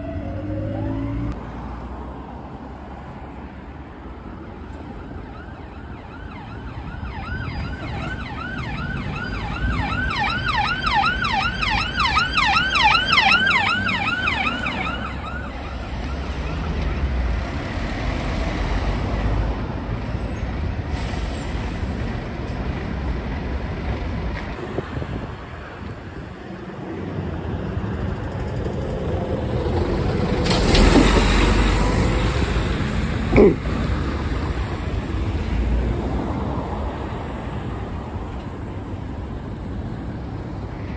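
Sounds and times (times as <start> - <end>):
siren yelping: 0.0 - 1.3, 5.0 - 17.0
engine and road noise: 0.0 - 40.9.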